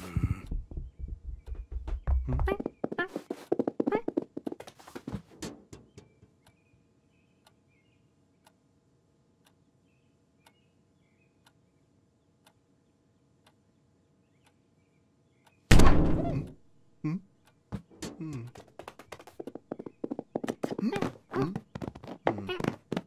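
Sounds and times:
faint bird chirps: 5.8 - 8.6, 9.4 - 15.7.

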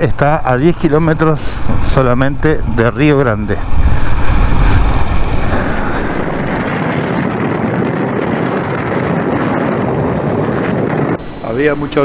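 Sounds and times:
wind buffeting microphone: 0.0 - 12.0.

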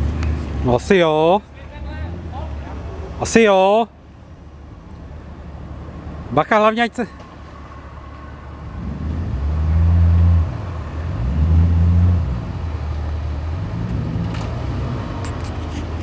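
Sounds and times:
car engine revving under load: 7.1 - 16.0.

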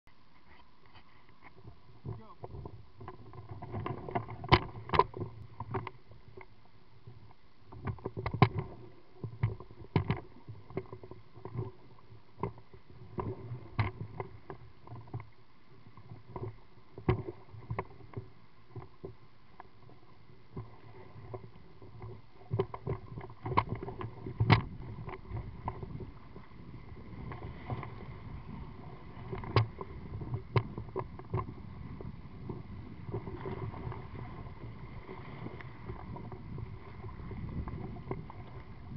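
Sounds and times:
rush of moving water: 1.0 - 38.9
water slapping against hull: 2.0 - 6.5, 19.8 - 38.9.

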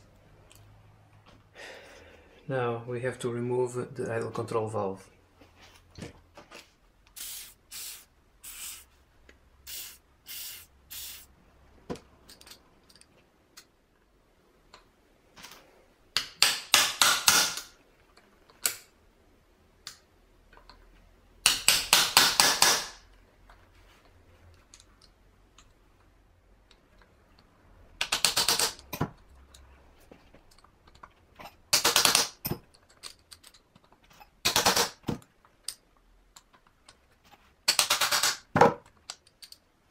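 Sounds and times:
aerosol can spraying: 7.1 - 8.9, 9.7 - 11.3.

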